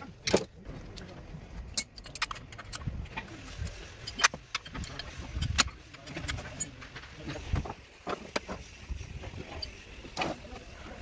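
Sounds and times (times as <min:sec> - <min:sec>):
metal clicks and clinks: 0:01.7 - 0:02.9.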